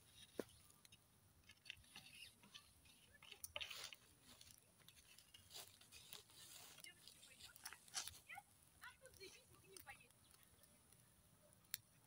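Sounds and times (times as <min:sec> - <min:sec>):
small pops and ticks: 0:08.8 - 0:12.0.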